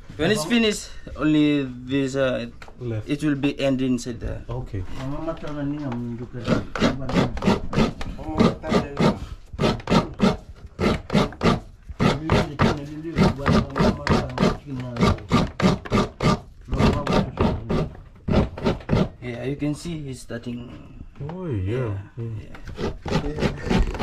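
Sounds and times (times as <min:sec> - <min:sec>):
coconut rasping on scraper: 0:06.4 - 0:19.3, 0:22.6 - 0:24.0.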